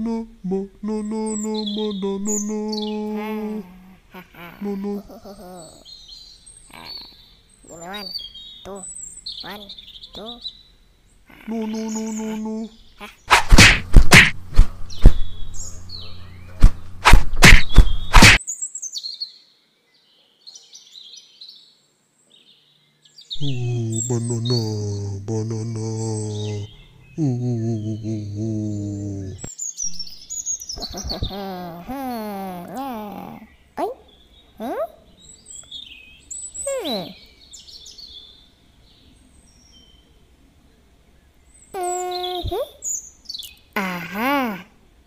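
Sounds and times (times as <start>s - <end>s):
low steady hum: 0.0s - 5.7s, 11.3s - 18.4s, 23.4s - 29.4s
birds chirping: 1.1s - 18.6s, 22.7s - 40.4s.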